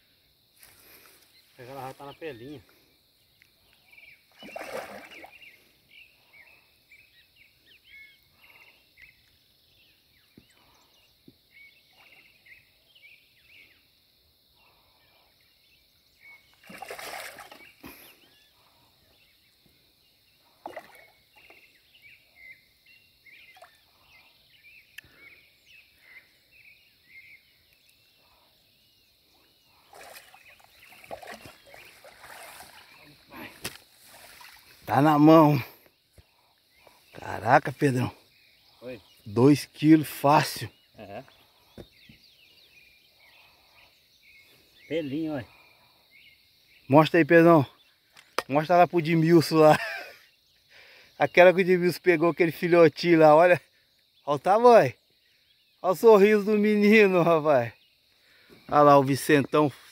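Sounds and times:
birds chirping: 0.0s - 59.9s
fish splashing in water: 4.3s - 5.5s, 16.6s - 17.8s, 29.8s - 34.7s.

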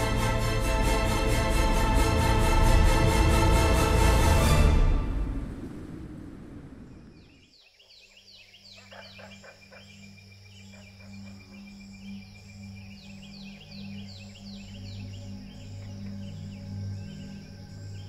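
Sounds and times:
background music: 0.0s - 6.0s, 9.7s - 18.0s.

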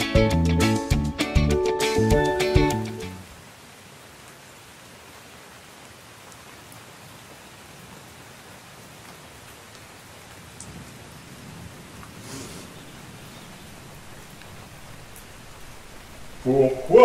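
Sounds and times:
steady rain hiss: 0.0s - 17.0s
rain rush: 1.8s - 17.0s
raindrops ticking: 9.0s - 17.0s.

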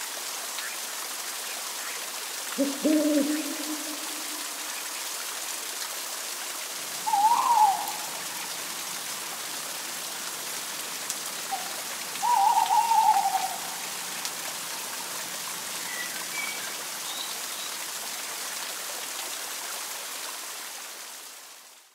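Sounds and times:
forest stream running: 0.0s - 21.9s
owl calls: 2.6s - 4.7s, 7.0s - 8.6s, 11.5s - 13.8s.

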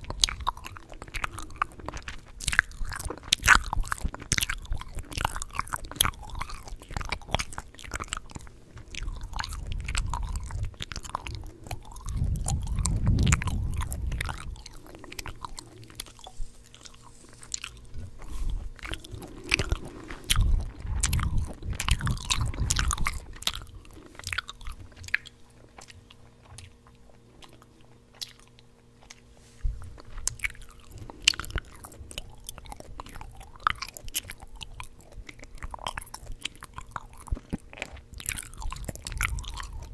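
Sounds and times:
gum chewing mouth sounds: 0.0s - 39.9s
low rumble: 8.3s - 25.3s.

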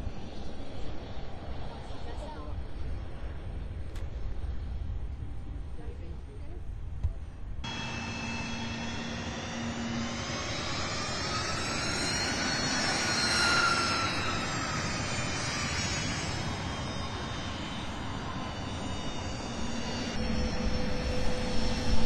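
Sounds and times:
jet engines whining: 7.6s - 22.0s.

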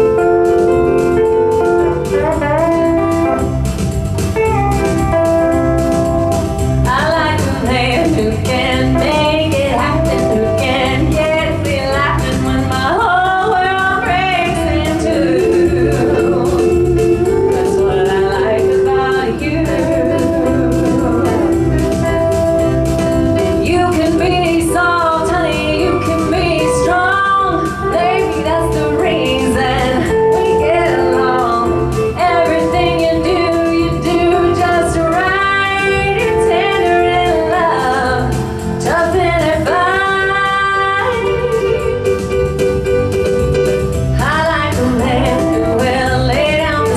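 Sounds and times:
live band playing: 0.0s - 46.9s
woman singing into a microphone: 6.8s - 22.4s, 23.4s - 42.4s, 44.1s - 46.9s.

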